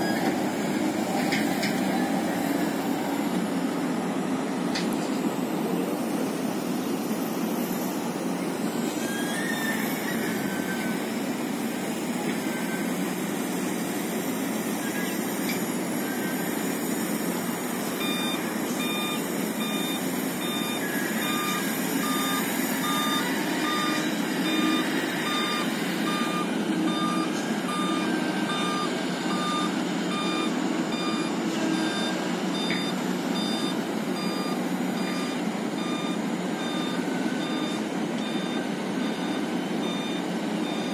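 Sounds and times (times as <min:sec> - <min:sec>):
heavy diesel engines running: 0:00.0 - 0:40.9
reversing alarm beeping: 0:17.9 - 0:40.9.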